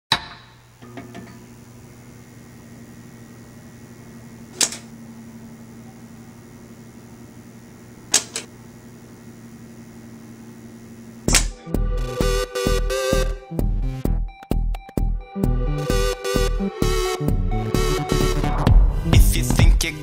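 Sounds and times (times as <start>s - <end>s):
low electrical hum: 0.1s - 12.2s.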